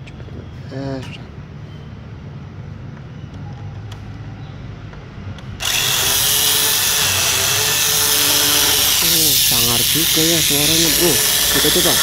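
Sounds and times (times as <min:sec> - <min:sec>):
small electric motor whirring: 0:05.6 - 0:12.0.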